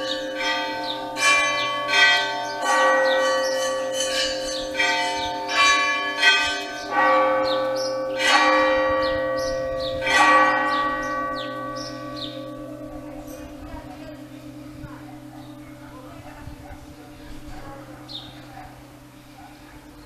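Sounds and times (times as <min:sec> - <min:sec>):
church bells ringing: 0:00.0 - 0:20.0.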